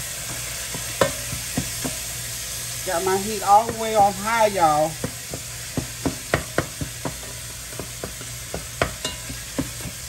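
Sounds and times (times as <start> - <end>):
meat sizzling in oil: 0.0 - 10.0
spatula knocking against pot: 0.7 - 2.0, 5.0 - 10.0.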